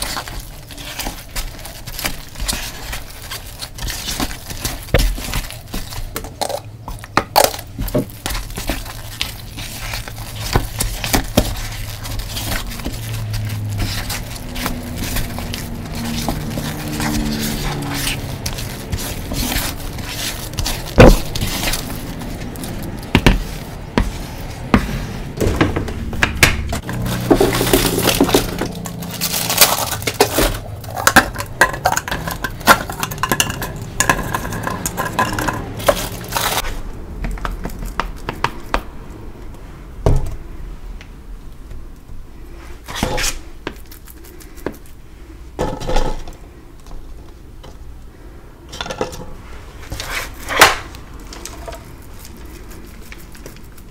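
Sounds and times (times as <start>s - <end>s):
damp chalk crunching and scraping: 0.0s - 38.7s, 49.4s - 53.9s
spoon tapping plastic cups: 30.0s - 36.3s.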